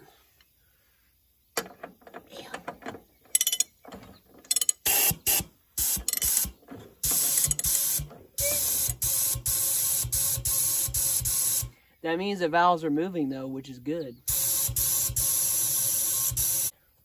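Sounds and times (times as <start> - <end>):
compressed air gun bursts: 4.8 - 11.7, 14.3 - 16.7.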